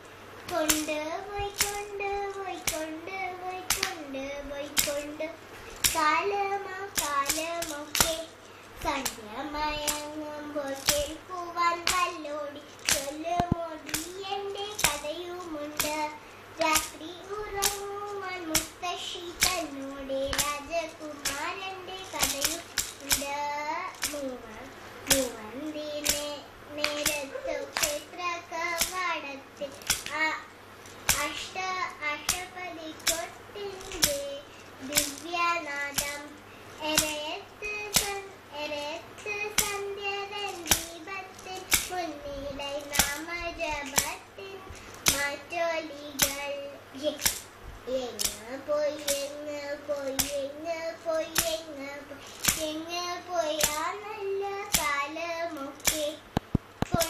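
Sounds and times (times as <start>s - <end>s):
hand claps: 0.5s - 3.0s, 3.7s - 4.0s, 4.8s - 5.2s, 5.8s - 6.3s, 6.9s - 9.2s, 9.8s - 11.2s, 11.8s - 24.3s, 26.0s - 30.2s, 30.9s - 38.3s, 39.5s - 42.2s, 42.8s - 44.2s, 44.8s - 45.4s, 46.1s - 46.4s, 47.1s - 47.5s, 48.2s - 50.4s, 51.2s - 51.7s, 52.3s - 52.8s, 53.5s - 54.0s, 54.6s - 57.0s.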